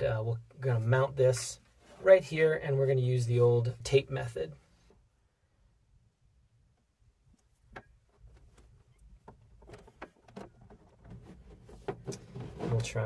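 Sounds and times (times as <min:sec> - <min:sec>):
hands handling cable: 0:07.2 - 0:12.9.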